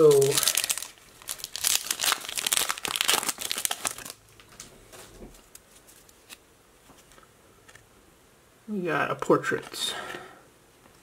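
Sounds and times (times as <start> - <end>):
card pack wrapper crinkling: 0.0 - 4.6.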